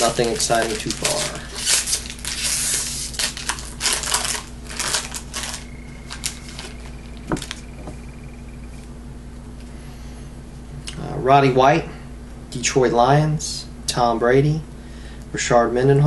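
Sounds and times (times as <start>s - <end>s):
foil wrapper crinkling and tearing: 0.0s - 7.6s.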